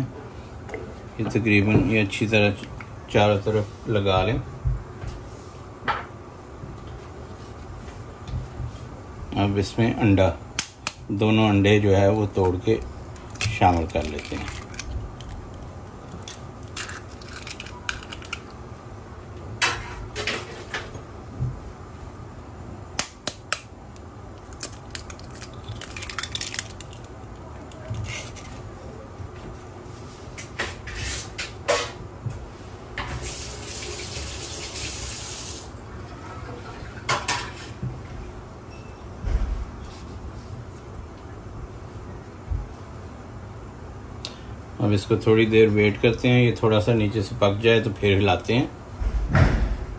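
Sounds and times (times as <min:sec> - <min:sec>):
kitchen tap running: 0:33.2 - 0:35.6.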